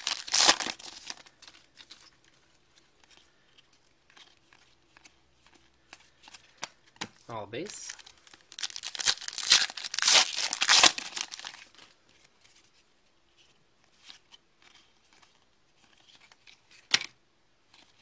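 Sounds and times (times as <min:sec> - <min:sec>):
wrapper tearing and crinkling: 0:00.0 - 0:02.0, 0:07.7 - 0:11.8
cards rustling: 0:00.0 - 0:17.1.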